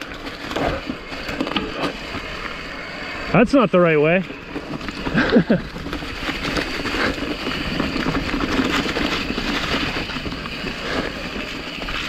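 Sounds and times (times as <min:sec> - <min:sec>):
bike rattling over bumps: 0:00.0 - 0:12.0
tyre noise on dirt: 0:00.0 - 0:12.0.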